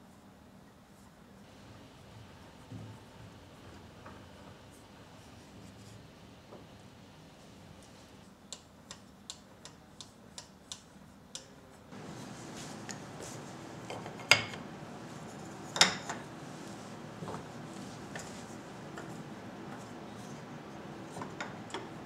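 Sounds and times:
wooden strips knocking on bench: 12.0s - 16.3s.

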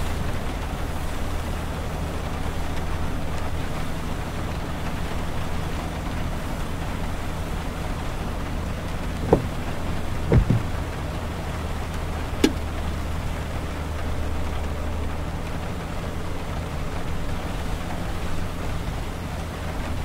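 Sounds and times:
car road noise drone: 0.0s - 20.0s
sharp taps and thumps: 9.2s - 11.0s, 12.4s - 12.6s.

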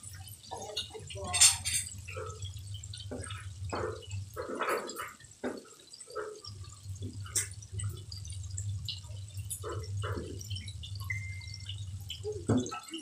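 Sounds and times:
oil bubbling and crackling: 0.0s - 13.0s.

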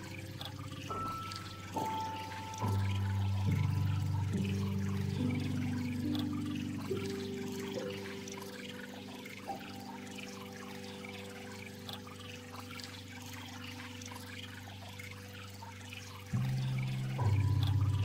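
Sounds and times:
slow background music: 0.0s - 18.0s.

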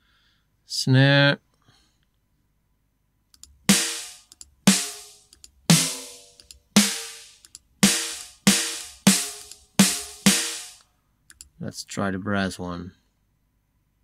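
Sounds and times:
snare drum hits: 3.7s - 10.8s.

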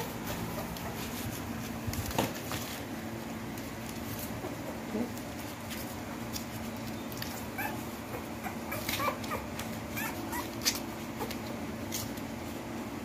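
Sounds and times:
puppy whimpering: 7.2s - 11.6s.

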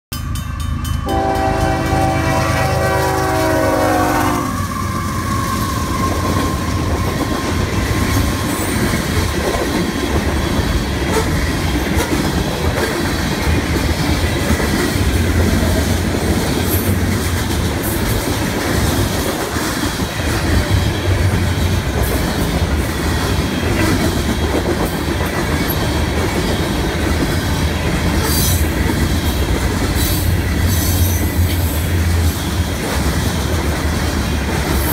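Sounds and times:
train air horn chord: 1.0s - 4.7s.

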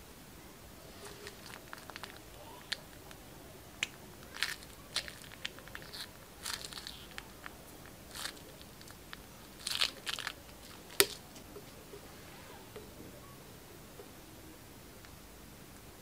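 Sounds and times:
glue bag crackling and clicking: 1.0s - 3.2s, 3.8s - 11.5s
short crunchy bursts: 4.2s - 11.2s.

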